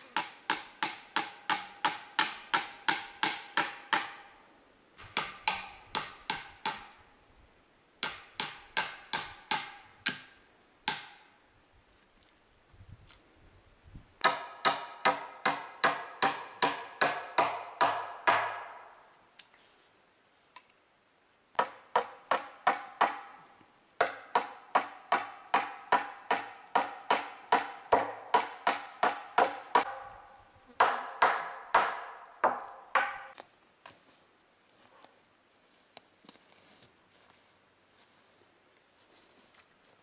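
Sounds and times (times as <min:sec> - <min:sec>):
hammer driving nails into wood: 0:05.0 - 0:07.0, 0:14.2 - 0:18.7, 0:24.0 - 0:30.0, 0:30.8 - 0:33.3.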